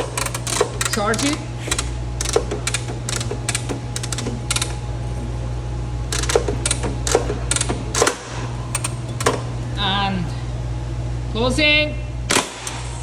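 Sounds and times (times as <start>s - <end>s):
circuit breaker mechanism clicking: 0.0s - 4.8s, 6.1s - 9.6s
low electrical hum: 0.0s - 13.0s.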